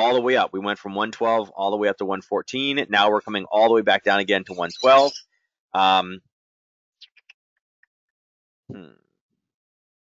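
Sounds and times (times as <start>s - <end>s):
man speaking: 0.0s - 5.2s, 5.8s - 6.2s.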